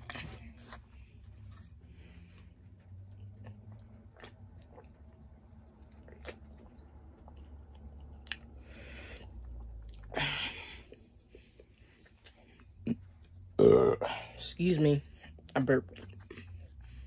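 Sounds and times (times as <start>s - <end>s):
chewing: 0.0s - 10.2s, 15.1s - 17.0s
loud burp: 13.6s - 14.2s.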